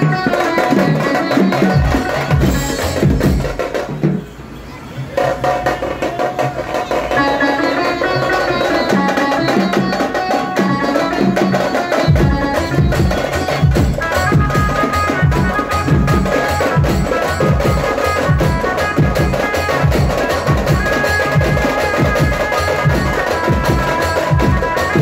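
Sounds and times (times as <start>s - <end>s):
dance music with fast drumming: 0.0s - 4.2s, 5.2s - 25.0s
heavy bass beat: 12.1s - 25.0s.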